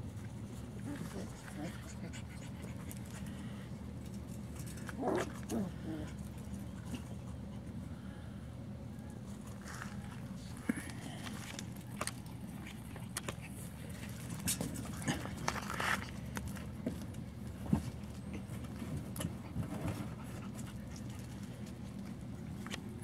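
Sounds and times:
puppies scuffling on gravel: 0:09.4 - 0:21.8.

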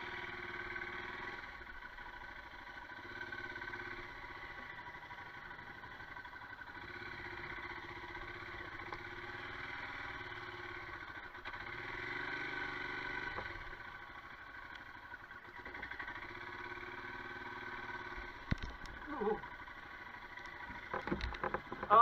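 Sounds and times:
motorcycle engine at low revs: 0:00.0 - 0:22.0
motorcycle knocking over rough ground: 0:18.2 - 0:19.0, 0:20.4 - 0:22.0.

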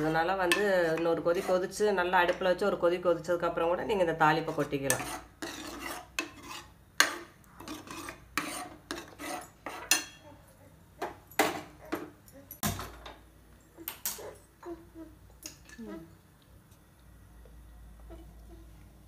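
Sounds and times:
ladle scraping a metal pot: 0:00.0 - 0:01.8, 0:04.4 - 0:10.2.

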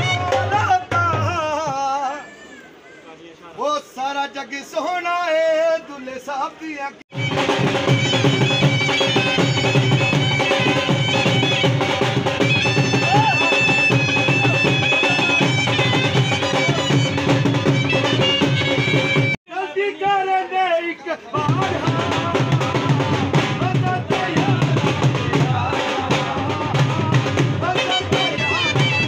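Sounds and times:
fast drum beat: 0:07.1 - 0:19.4, 0:21.4 - 0:29.0
piping melody: 0:07.1 - 0:19.4, 0:21.4 - 0:29.0.

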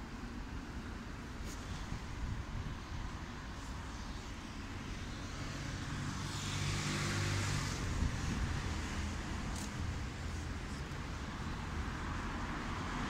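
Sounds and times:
traffic background: 0:00.0 - 0:13.0
vehicle passing close: 0:05.4 - 0:09.2.

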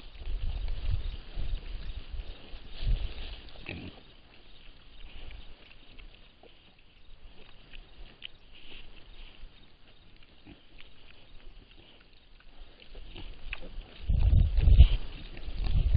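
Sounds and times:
pigs short calls: 0:03.6 - 0:04.1.

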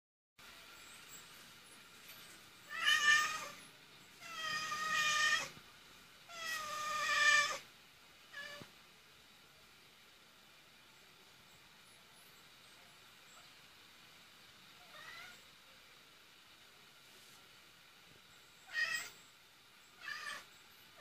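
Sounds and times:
cat meowing: 0:02.7 - 0:03.6, 0:04.2 - 0:05.6, 0:06.3 - 0:07.6, 0:08.3 - 0:08.7, 0:14.8 - 0:15.4, 0:18.7 - 0:19.2, 0:20.0 - 0:20.5.

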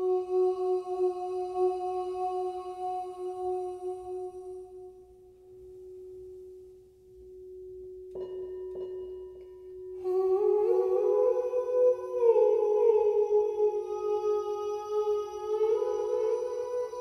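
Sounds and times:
singing bowl ringing: 0:04.7 - 0:17.0.

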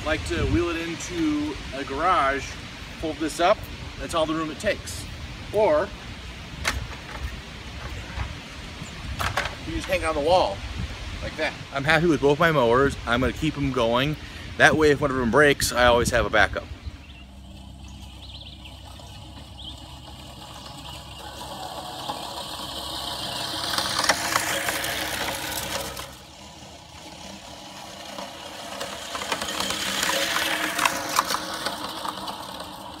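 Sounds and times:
reel mower blades whirring: 0:14.7 - 0:33.0.

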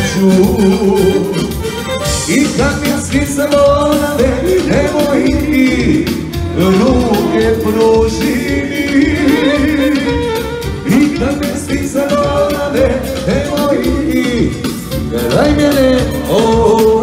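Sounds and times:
person singing: 0:00.0 - 0:17.0
upbeat dance music: 0:00.0 - 0:17.0.

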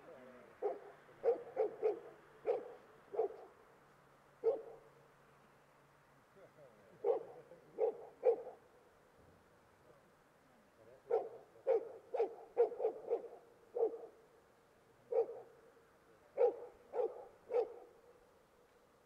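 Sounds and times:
dog barking: 0:00.6 - 0:03.5, 0:04.4 - 0:04.8, 0:07.0 - 0:08.6, 0:11.1 - 0:14.2, 0:15.1 - 0:15.5, 0:16.4 - 0:18.0.

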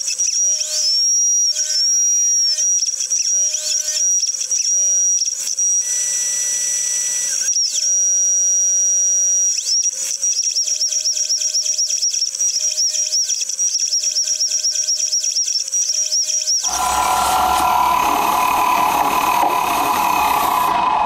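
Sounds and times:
milling machine whine: 0:16.6 - 0:21.0.

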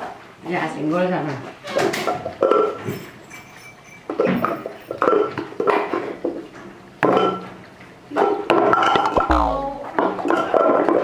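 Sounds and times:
pots and pans clattering: 0:01.7 - 0:07.6, 0:10.3 - 0:11.0.

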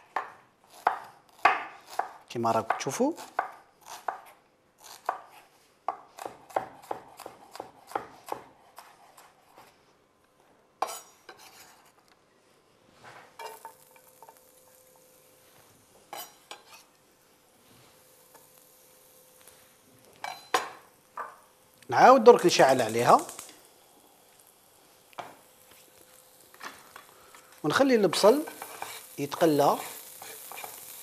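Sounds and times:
knife chopping on wooden board: 0:05.9 - 0:09.3
scraping into frying pan: 0:10.8 - 0:12.0, 0:16.1 - 0:17.0, 0:28.2 - 0:31.0
onion sizzling in frying pan: 0:13.0 - 0:31.0
knife clinking on pan: 0:20.2 - 0:20.8.

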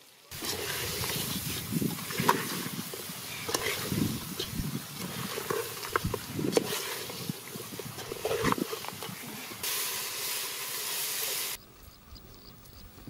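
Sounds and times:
wet churning of stirred curry: 0:00.3 - 0:09.6.

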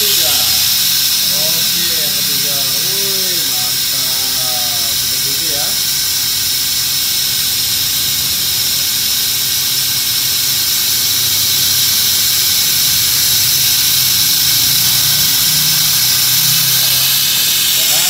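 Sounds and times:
suction extractor hissing: 0:00.0 - 0:18.0.

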